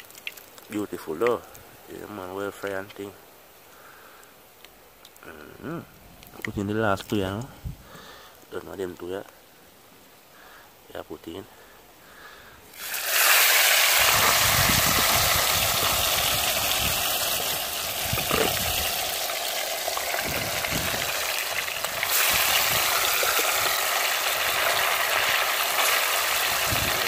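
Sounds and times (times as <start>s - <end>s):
fish sizzling in hot oil: 0.0s - 0.8s, 12.7s - 27.0s.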